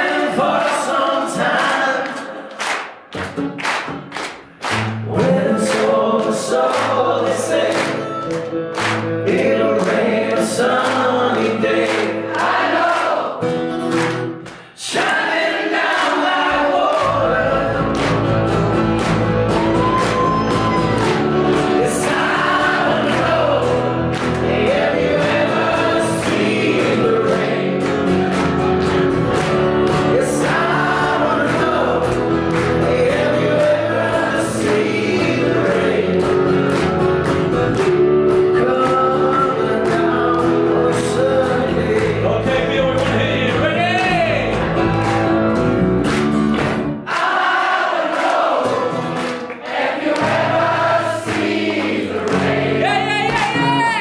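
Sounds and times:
voices singing together: 0.0 - 2.8, 4.9 - 13.6, 14.7 - 45.4, 47.0 - 54.0
live rock band playing: 17.5 - 47.0.

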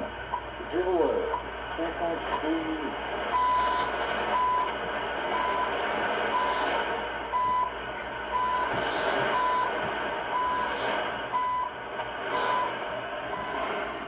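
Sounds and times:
radio band noise hiss: 0.0 - 14.0
short radio beeps: 8.4 - 11.7, 12.3 - 13.8.

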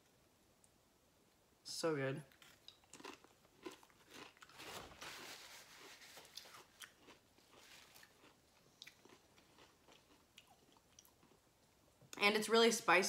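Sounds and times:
chewing crunchy chip: 2.3 - 11.4.

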